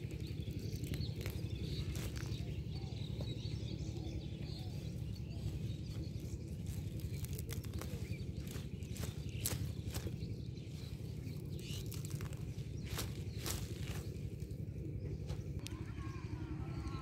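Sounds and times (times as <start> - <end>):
leaves rustling and stems snapping: 0.0 - 2.6, 5.9 - 14.6
bird chirps: 0.0 - 17.0
low rumble: 0.0 - 17.0.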